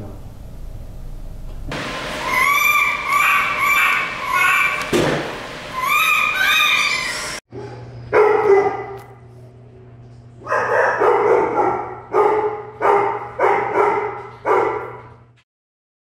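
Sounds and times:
steady low hum: 0.0 - 2.3
dog barking: 7.6 - 9.2, 10.4 - 15.1.

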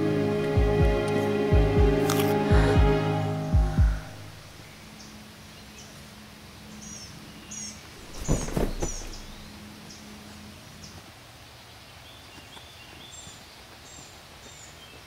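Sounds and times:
small birds chirping: 3.5 - 15.0
thuds and rustling: 8.0 - 9.5.

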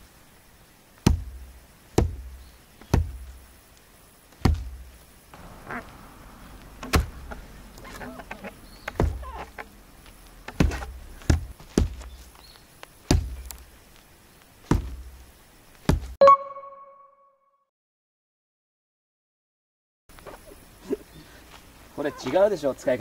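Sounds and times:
hatchet chopping into wood: 1.0 - 1.4, 2.0 - 2.3, 2.9 - 3.2, 4.4 - 4.8, 6.8 - 7.2, 8.3 - 9.6, 10.5 - 12.0, 13.1 - 13.6
short pitched tone: 16.2 - 17.6.

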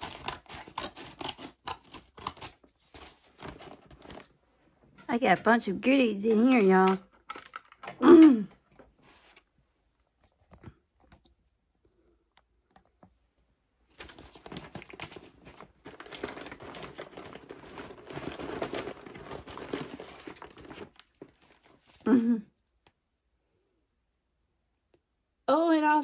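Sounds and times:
paper mailer crinkling: 0.0 - 4.4, 13.9 - 22.0.

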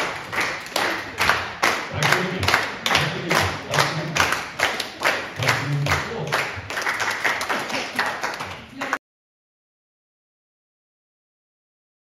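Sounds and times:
small audience applauding: 0.0 - 9.0.

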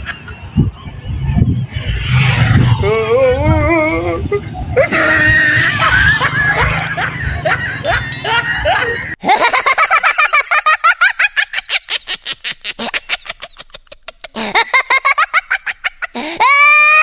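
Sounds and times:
high-pitched cackling laughter: 4.8 - 17.0.

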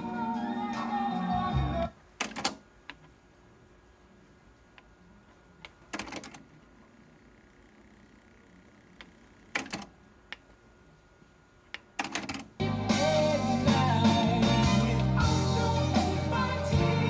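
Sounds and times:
music playing from tape: 0.0 - 2.0, 12.6 - 17.0
faint tape winding whir: 0.0 - 12.6.

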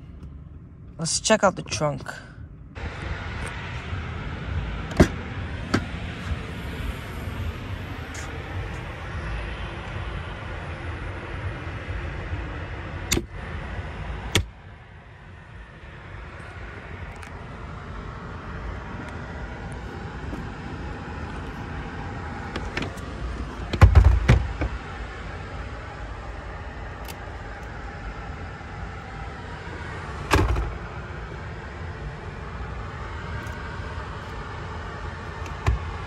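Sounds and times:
steady low rumble: 0.0 - 36.0
heavy thump of seat folding: 4.9 - 5.9, 23.7 - 24.8, 30.3 - 30.8
sharp clicks of seat latches: 4.9 - 6.4, 13.1 - 13.3, 14.3 - 14.5, 22.4 - 24.8, 27.0 - 27.2, 30.2 - 30.8, 35.4 - 36.0.

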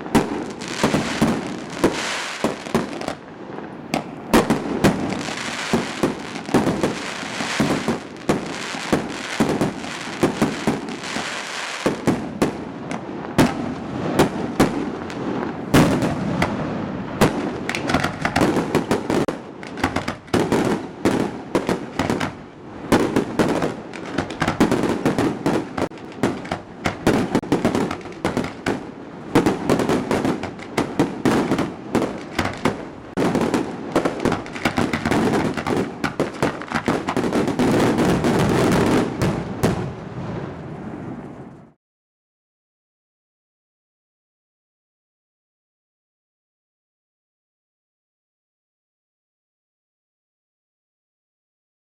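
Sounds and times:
fireworks bangs and crackling: 0.0 - 41.4.

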